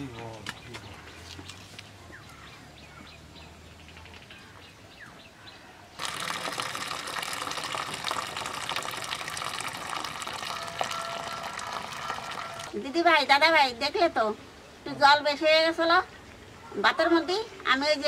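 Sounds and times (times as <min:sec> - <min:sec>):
water pouring into a steel bowl: 0:06.0 - 0:12.8.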